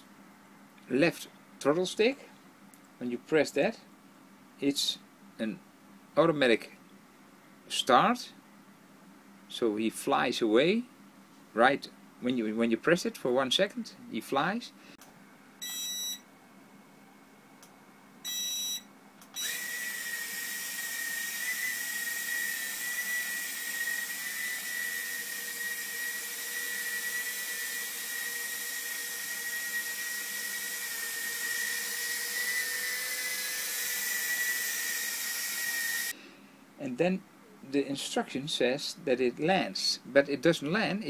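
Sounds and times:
short beep: 0:15.6 - 0:16.2, 0:18.2 - 0:18.9.

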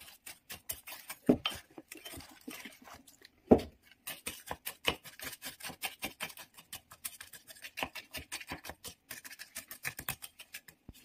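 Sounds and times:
spoon scraping ceramic bowl: 0:00.0 - 0:03.2.

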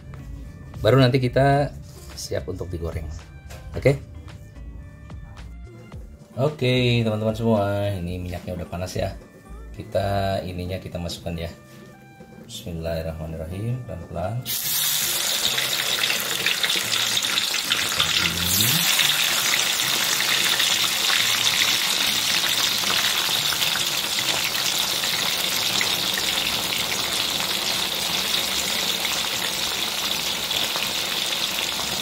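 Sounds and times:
deep-frying sizzle: 0:14.5 - 0:32.0.

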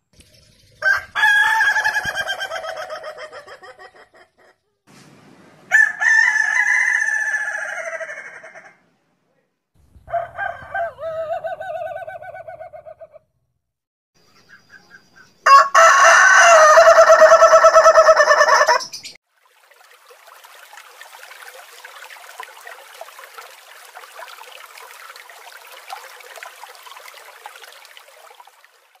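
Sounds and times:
rooster crowing: 0:00.8 - 0:03.4, 0:05.7 - 0:08.8, 0:10.1 - 0:12.9, 0:15.4 - 0:18.9.

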